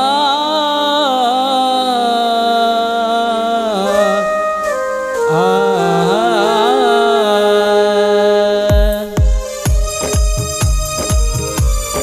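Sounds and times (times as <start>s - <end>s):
wavering wordless folk melody: 0.0s - 12.0s
sustained accompaniment notes: 3.8s - 12.0s.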